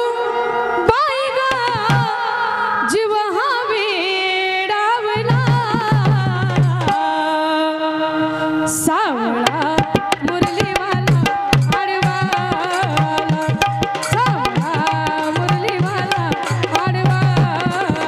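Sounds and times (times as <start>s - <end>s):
woman singing folk song: 0.0s - 18.0s
hand drum: 9.5s - 18.0s.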